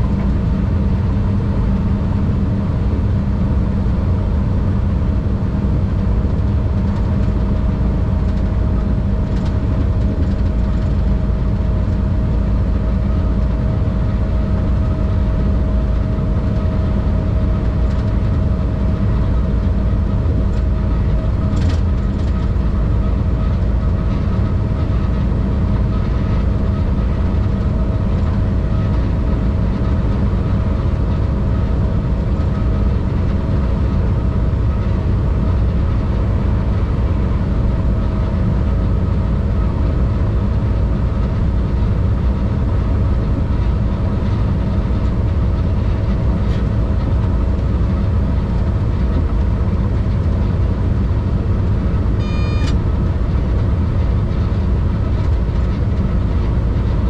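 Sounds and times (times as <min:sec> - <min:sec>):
train rumbling: 0:00.0 - 0:57.0
short high beep: 0:52.2 - 0:52.8.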